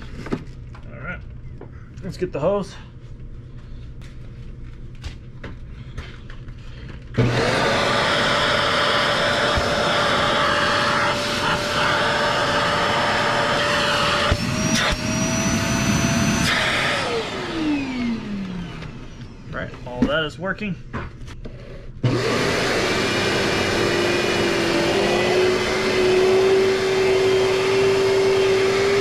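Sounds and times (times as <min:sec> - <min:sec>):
vacuum motor whining: 0:07.2 - 0:20.0, 0:21.5 - 0:29.0.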